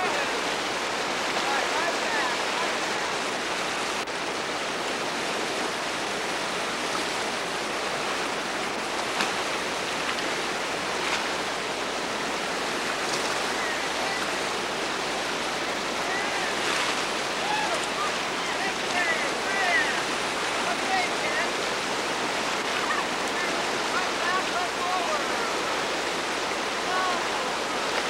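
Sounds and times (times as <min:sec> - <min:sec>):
rush of churning water: 0:00.0 - 0:28.0.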